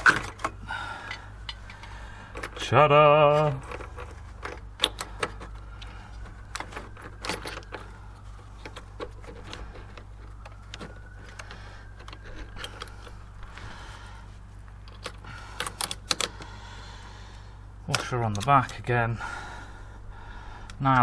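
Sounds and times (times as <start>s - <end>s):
metal parts clicking and clinking: 3.3s - 7.9s, 14.8s - 16.4s.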